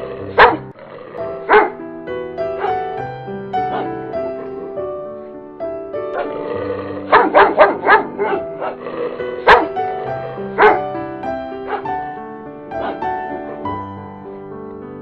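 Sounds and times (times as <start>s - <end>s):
background music: 0.0s - 15.0s
dog barking: 0.4s - 0.7s, 1.5s - 1.8s, 2.6s - 2.9s, 3.6s - 4.1s, 7.1s - 8.8s, 9.4s - 9.8s, 10.6s - 10.9s, 11.6s - 12.0s, 12.8s - 13.2s.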